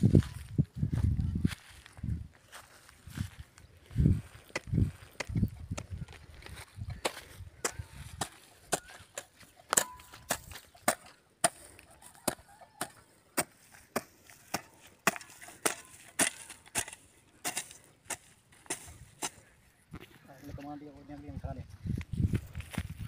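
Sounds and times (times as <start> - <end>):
hoe chopping into dry soil: 4.5 - 19.4.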